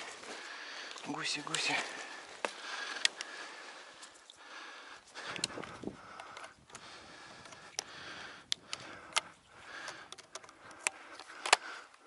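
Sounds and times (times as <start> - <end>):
breathing: 0.0 - 12.0
sharp clicks: 5.3 - 7.9, 8.5 - 12.0.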